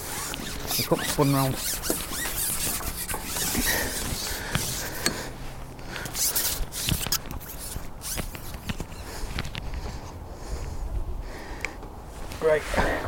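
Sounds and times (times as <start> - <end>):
scraping and rustling handling noise: 0.0 - 10.2.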